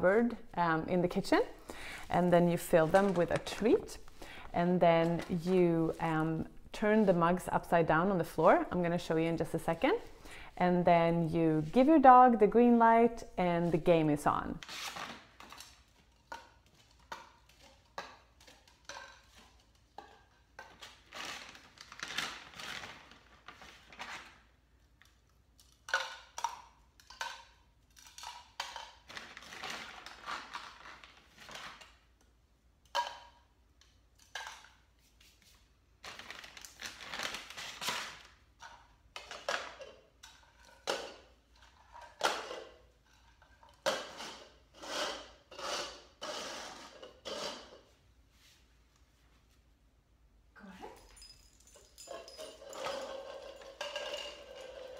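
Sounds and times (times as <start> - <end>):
plastic cups clicking on tile floor: 15.1 - 23.0, 24.9 - 32.0, 32.8 - 34.9, 38.2 - 47.9, 51.7 - 54.9.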